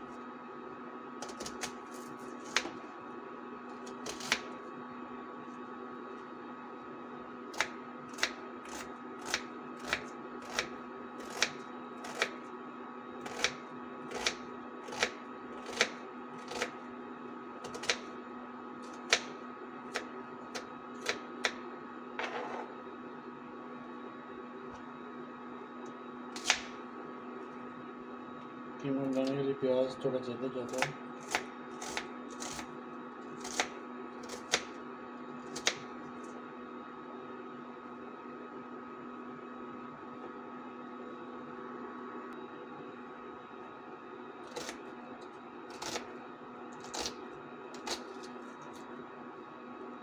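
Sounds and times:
knife chopping on cutting board: 0:01.2 - 0:02.8
knife scraping board: 0:22.2 - 0:22.8.

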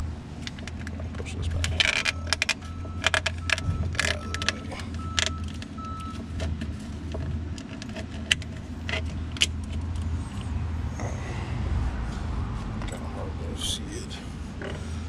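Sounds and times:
hoses and wiring clicking and rattling: 0:00.0 - 0:10.5
steady low hum: 0:00.0 - 0:15.0
faint high beep: 0:02.0 - 0:06.2.

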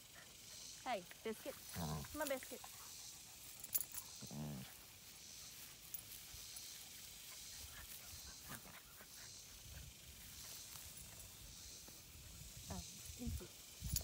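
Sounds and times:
puppy growling: 0:01.6 - 0:02.3, 0:04.0 - 0:04.8.

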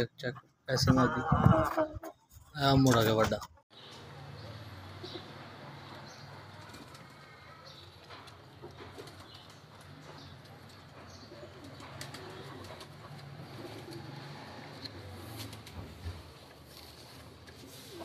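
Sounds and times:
low cooing bird calls: 0:10.1 - 0:16.3.

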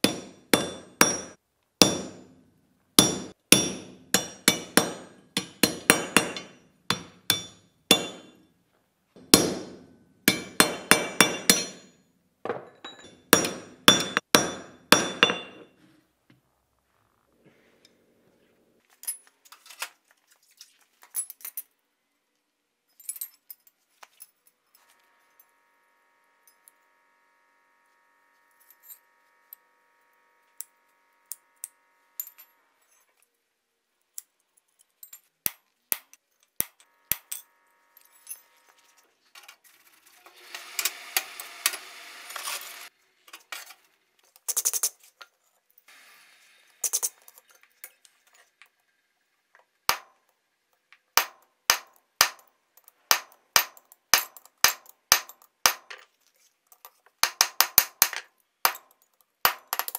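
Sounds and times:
faint steady hum: 0:24.8 - 0:33.0
steel pieces clinking: 0:44.4 - 0:45.2, 0:46.8 - 0:48.4.

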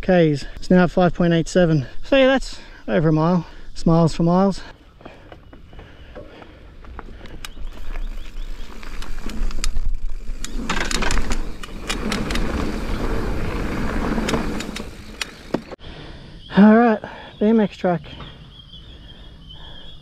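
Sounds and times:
bike tyre noise: 0:05.0 - 0:16.0
bike clicks and rattles: 0:05.2 - 0:15.8
wind rumbling on microphone: 0:06.9 - 0:15.7.

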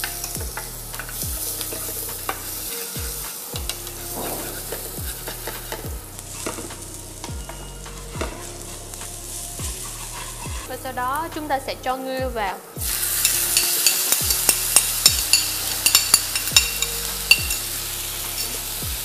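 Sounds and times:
garlic sizzling in oil: 0:00.0 - 0:11.9, 0:12.8 - 0:19.0
utensil clicking against pan: 0:13.2 - 0:17.7.

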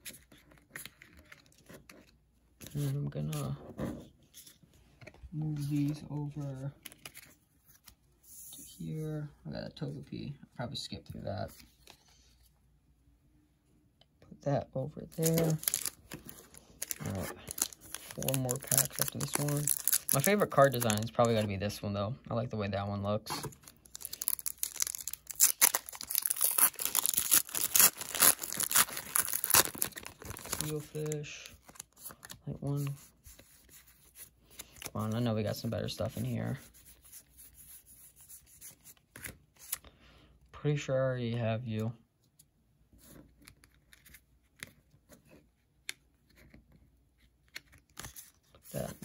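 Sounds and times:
trading cards rustling and clicking: 0:04.2 - 0:08.0, 0:15.0 - 0:21.7, 0:23.3 - 0:37.2, 0:42.3 - 0:49.0
foil wrapper crackling and rustling: 0:15.2 - 0:21.4, 0:23.6 - 0:31.9.

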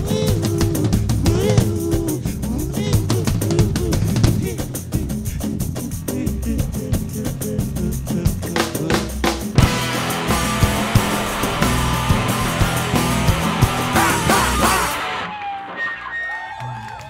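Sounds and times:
drum kit beat: 0:00.0 - 0:15.2
band playing instrumental: 0:07.0 - 0:15.9.

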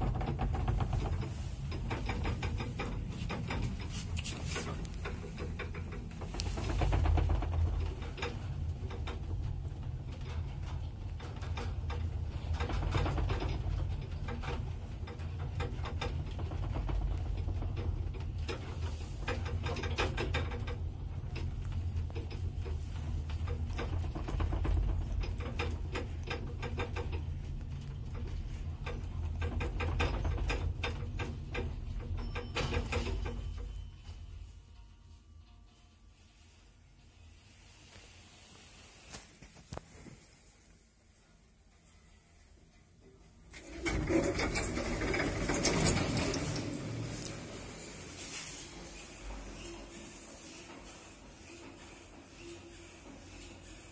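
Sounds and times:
elevator clicking and rattling: 0:00.0 - 0:35.7, 0:43.4 - 0:53.9
elevator low rumble: 0:00.0 - 0:39.0, 0:39.9 - 0:53.9.

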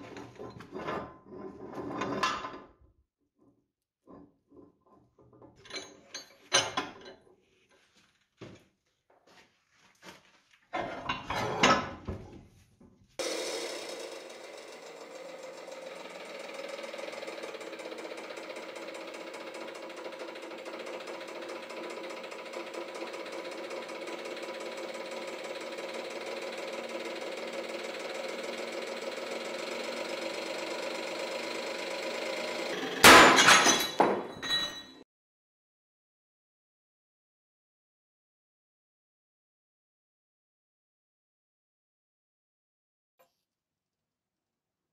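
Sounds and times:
hydraulic press humming: 0:13.2 - 0:33.4
metal pieces clattering: 0:33.1 - 0:35.0.

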